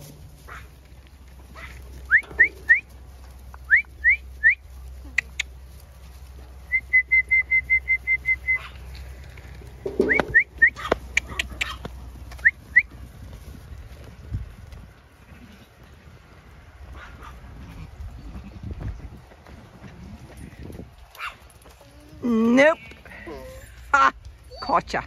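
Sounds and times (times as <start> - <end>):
shepherd's mouth whistle: 6.7 - 8.6.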